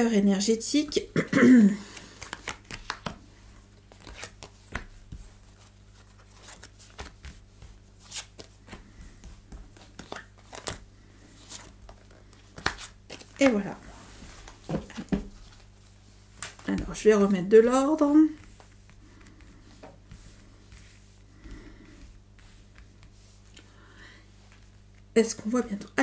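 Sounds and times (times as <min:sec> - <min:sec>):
low steady hum: 0:00.0 - 0:26.0
cards tapping and sliding: 0:01.9 - 0:03.2, 0:03.8 - 0:10.8, 0:11.4 - 0:13.6.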